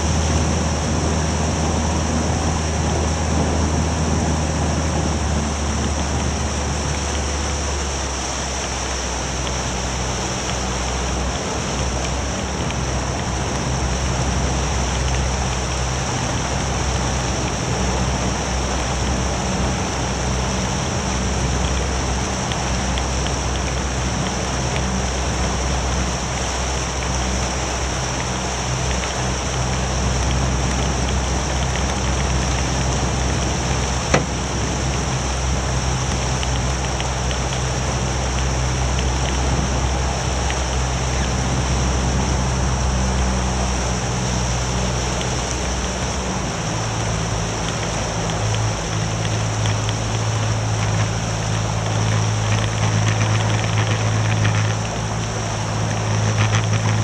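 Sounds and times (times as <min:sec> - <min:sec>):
outboard motor running: 0:00.0 - 0:57.0
water rushing along hull: 0:00.0 - 0:57.0
wind: 0:00.0 - 0:57.0.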